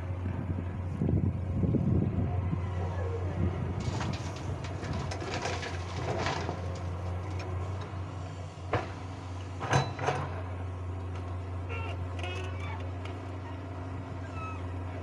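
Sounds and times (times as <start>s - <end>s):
excavator diesel engine droning: 0.0s - 15.0s.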